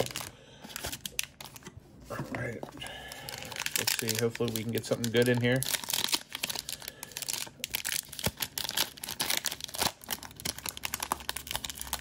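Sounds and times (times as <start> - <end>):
foil wrapper crinkling: 0.0 - 1.7, 2.8 - 12.0
foil wrapper tearing: 3.2 - 12.0.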